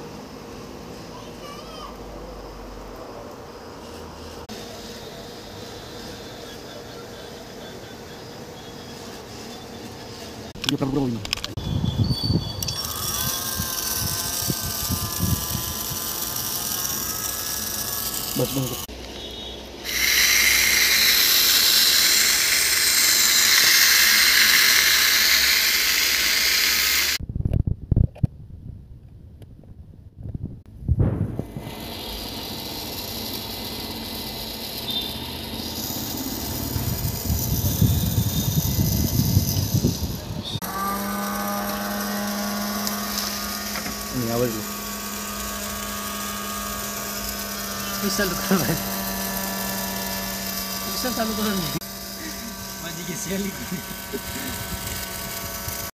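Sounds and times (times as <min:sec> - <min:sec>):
small electric motor whirring: 0:00.0 - 0:27.2, 0:31.3 - 0:55.9.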